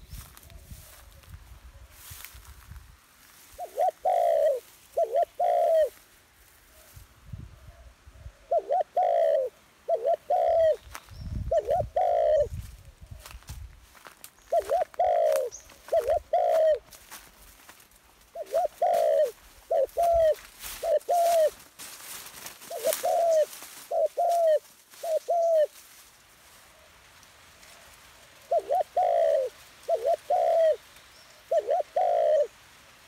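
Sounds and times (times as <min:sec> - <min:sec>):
dove cooing: 0:03.6 - 0:06.0, 0:07.6 - 0:13.3, 0:14.4 - 0:17.0, 0:18.3 - 0:21.6, 0:22.6 - 0:25.8, 0:27.7 - 0:30.8, 0:31.4 - 0:32.6.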